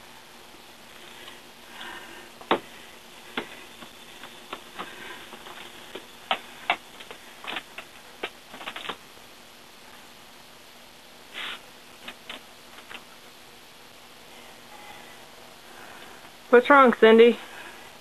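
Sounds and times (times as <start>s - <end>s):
walker clicking and knocking on concrete: 3.3s - 9.0s.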